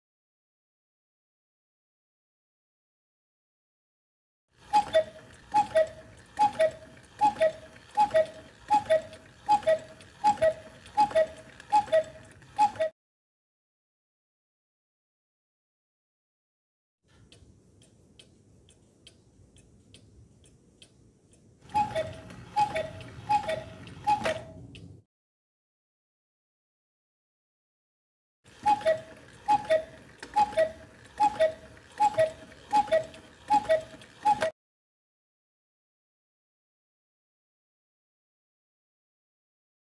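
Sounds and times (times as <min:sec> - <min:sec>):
cuckoo clock calling: 0:04.6 - 0:12.9, 0:21.6 - 0:24.9, 0:28.5 - 0:34.5.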